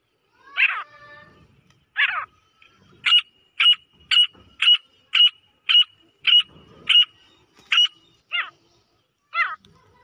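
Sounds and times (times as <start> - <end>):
francolin calling: 3.0 - 8.6.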